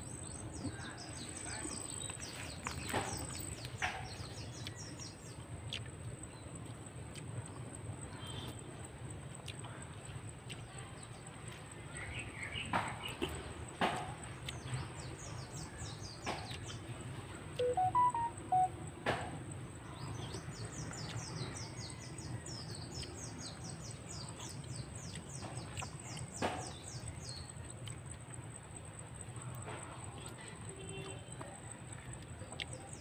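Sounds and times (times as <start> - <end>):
birds chirping: 0.0 - 8.6, 9.5 - 18.8
whistled notes: 17.6 - 18.7.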